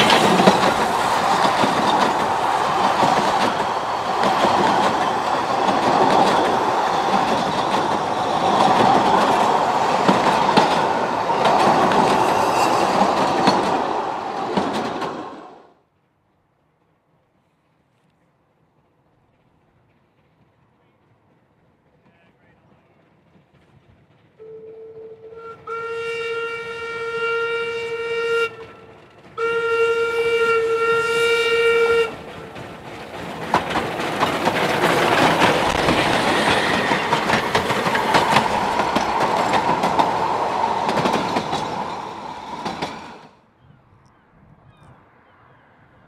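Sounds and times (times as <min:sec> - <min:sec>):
train passing with wheel noise: 0:00.0 - 0:43.5
steam locomotive whistle: 0:24.4 - 0:32.6.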